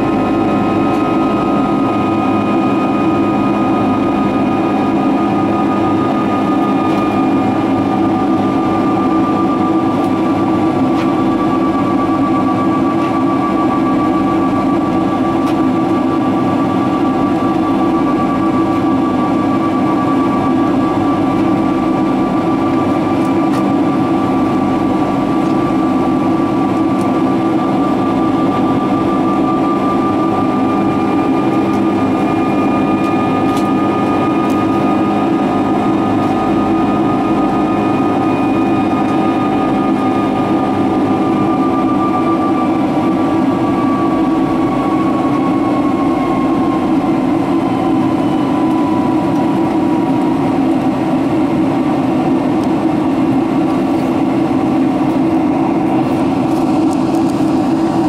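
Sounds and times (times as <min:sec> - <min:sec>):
airplane cabin engine roar: 0:00.0 - 0:58.0.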